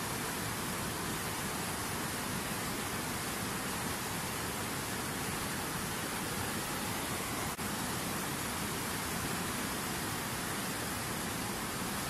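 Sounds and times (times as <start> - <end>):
river rushing over rocks: 0.0 - 12.0.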